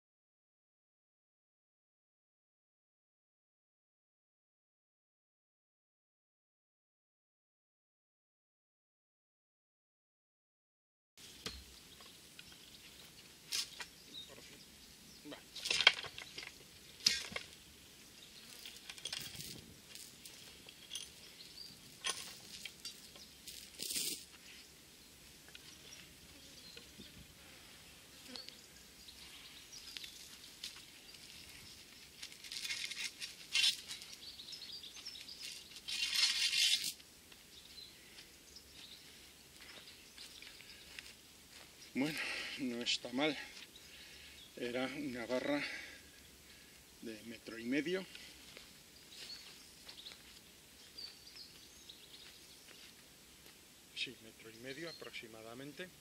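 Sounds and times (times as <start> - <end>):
chain and rebar clinking and scraping: 15.6 - 17.5, 18.4 - 24.3, 32.2 - 34.1, 35.4 - 37.0.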